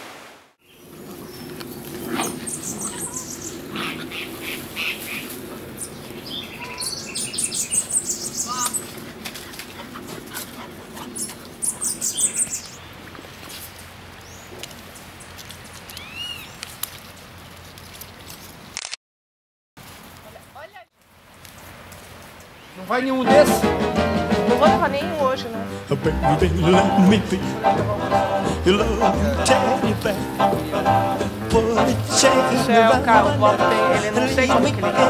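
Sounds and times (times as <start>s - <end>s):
puppies rustling in leaves: 0.7s - 18.8s, 19.8s - 23.5s, 26.8s - 35.0s
puppy chirps: 2.2s - 3.9s.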